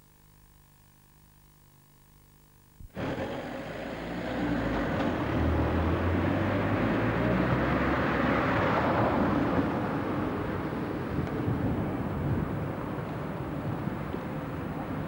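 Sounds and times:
vehicle passing: 3.0s - 10.7s.

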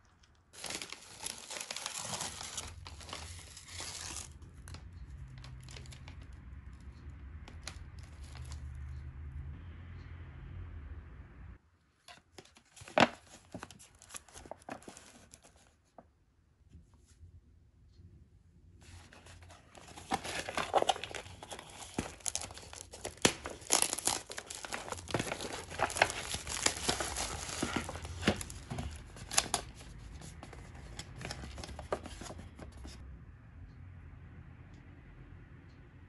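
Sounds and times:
plastic film crinkling and crackling: 0.0s - 6.4s, 12.4s - 15.7s, 18.9s - 33.0s.

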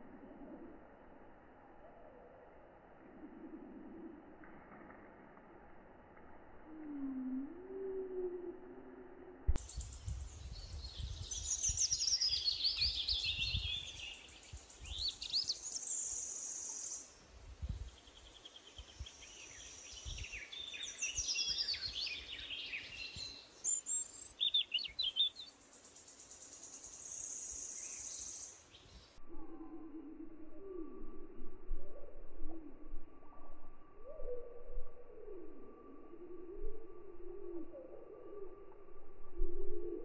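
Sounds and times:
birds chirping and trilling: 9.6s - 30.9s.

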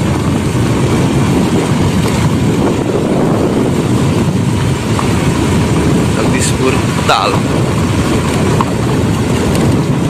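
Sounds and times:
vehicle rumble: 0.0s - 10.0s
wind buffeting microphone: 0.0s - 10.0s.

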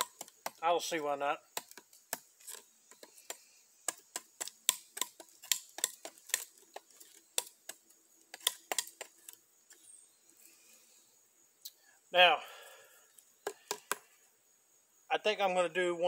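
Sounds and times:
knife chopping wooden stick: 1.5s - 9.3s.

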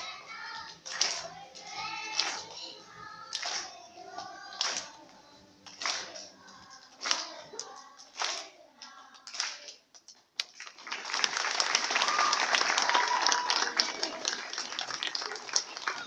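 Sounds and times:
children singing: 0.0s - 9.7s
audience applause: 10.6s - 16.0s.

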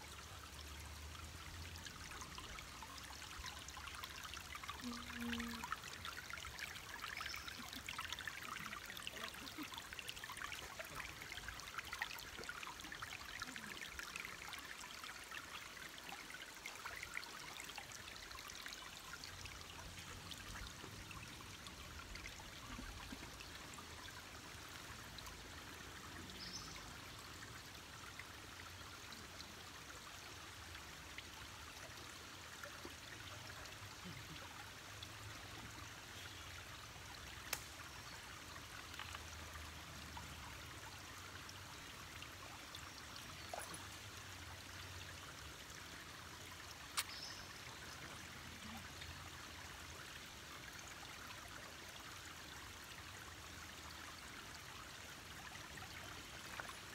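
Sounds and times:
creek trickling over rocks: 0.0s - 56.9s.

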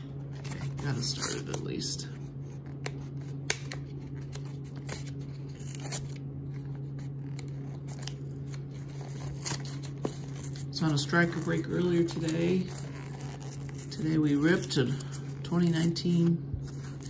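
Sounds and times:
steady low hum: 0.0s - 17.0s
cardboard tearing crackles: 2.5s - 17.0s.

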